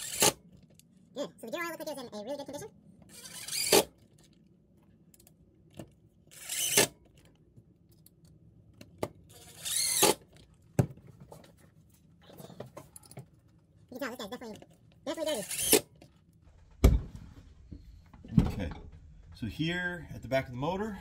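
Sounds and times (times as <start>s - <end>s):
cordless impact driver: 0.0s - 0.4s, 3.1s - 3.9s, 6.3s - 7.0s, 9.3s - 10.2s, 15.4s - 15.9s
screws and tool clicking: 0.0s - 0.4s, 3.1s - 3.9s, 6.3s - 7.0s, 9.3s - 10.2s, 15.4s - 15.9s.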